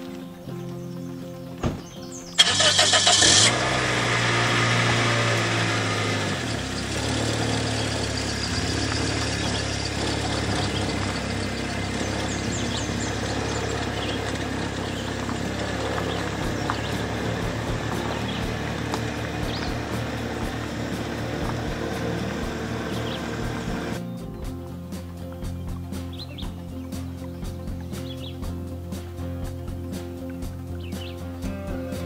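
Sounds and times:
car engine idling: 0:01.8 - 0:31.8
car starter cranking: 0:02.3 - 0:24.0.

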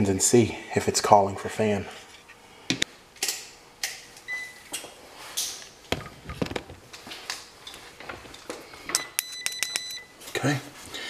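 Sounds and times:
multimeter leads clicking and knocking: 0:08.4 - 0:10.0.

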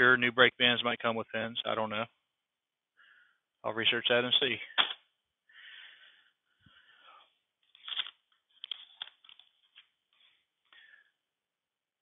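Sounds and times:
paper rustling: 0:07.6 - 0:10.8.

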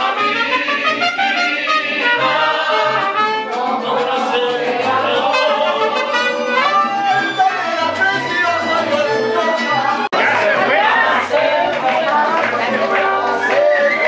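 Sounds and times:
trumpet: 0:00.0 - 0:11.5, 0:12.4 - 0:14.0
mariachi band playing: 0:00.0 - 0:14.0
strummed guitars: 0:00.0 - 0:14.0.

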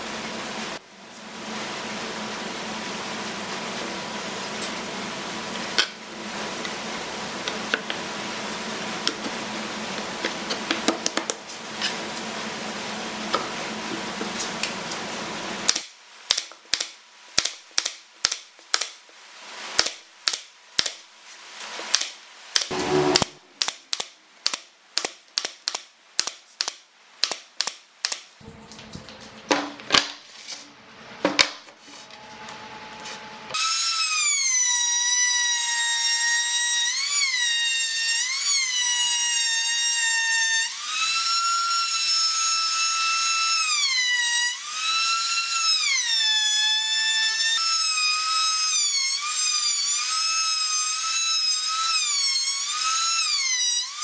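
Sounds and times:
steady mechanical hum: 0:00.0 - 0:15.7, 0:28.4 - 0:33.6.

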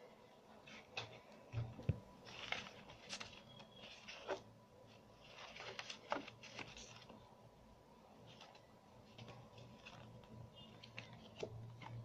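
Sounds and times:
paper rustling: 0:02.2 - 0:07.3, 0:08.2 - 0:12.0.

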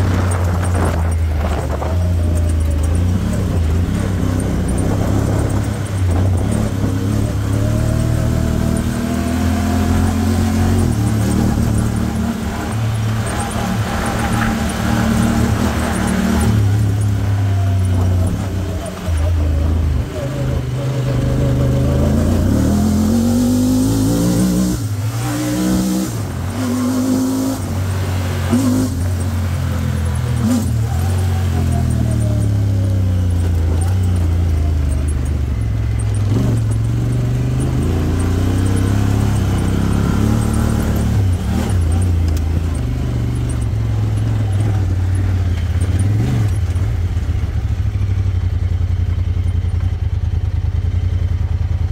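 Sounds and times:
engine revving while driving: 0:00.0 - 0:51.9.

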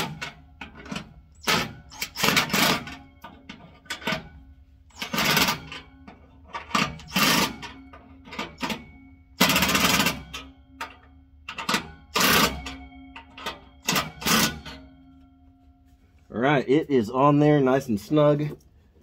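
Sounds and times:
impact wrench hammering: 0:00.0 - 0:05.9, 0:06.5 - 0:15.3.

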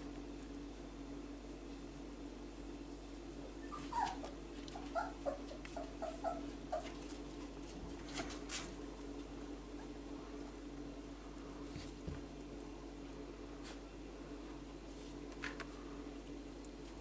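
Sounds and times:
puppy crying: 0:03.6 - 0:07.0.

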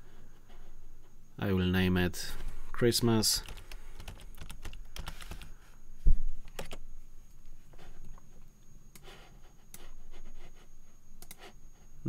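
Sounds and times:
keyboard typing clicks: 0:03.4 - 0:05.5.

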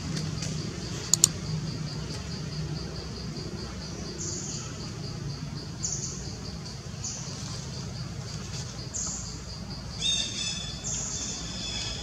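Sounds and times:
insects trilling: 0:00.0 - 0:12.0
sharp click: 0:01.1 - 0:01.3.

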